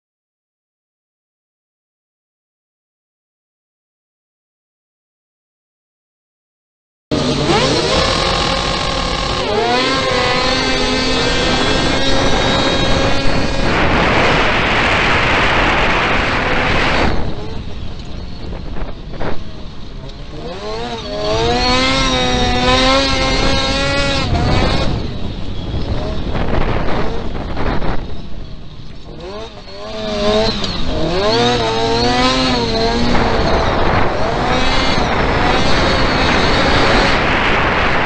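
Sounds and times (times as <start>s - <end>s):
race car engine revving: 7.1s - 28.1s, 28.8s - 38.0s
harsh rushing noise: 7.1s - 38.0s.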